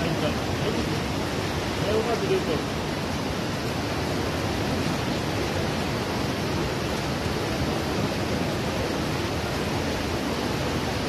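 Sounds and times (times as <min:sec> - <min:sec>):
roar of rushing river water: 0:00.0 - 0:11.0.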